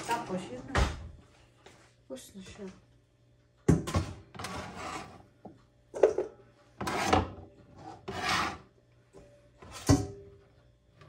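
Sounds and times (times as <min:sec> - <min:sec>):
scraping on cutting board: 0:04.4 - 0:05.2, 0:06.8 - 0:08.7.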